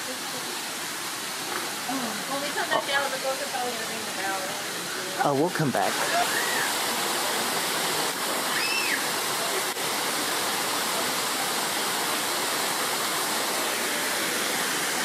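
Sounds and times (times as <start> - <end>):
waterfall rushing into a pond: 0.0 - 15.0.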